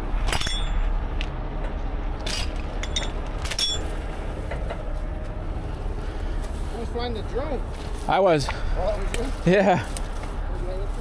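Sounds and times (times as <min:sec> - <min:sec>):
low engine rumble: 0:00.0 - 0:11.0
metallic clinks of hardware: 0:02.2 - 0:04.0.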